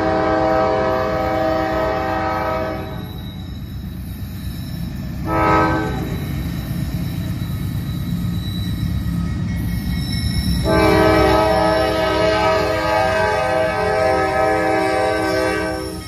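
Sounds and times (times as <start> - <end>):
locomotive air horn blasts: 0.0 - 3.1, 5.2 - 6.2, 10.6 - 16.0
locomotive engine rumble: 0.0 - 16.0.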